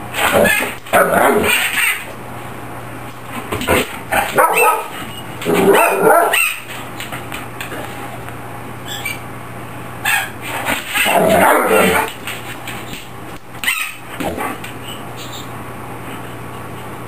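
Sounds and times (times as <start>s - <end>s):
large dog barking: 0.2s - 1.7s, 4.1s - 6.6s, 11.0s - 12.1s.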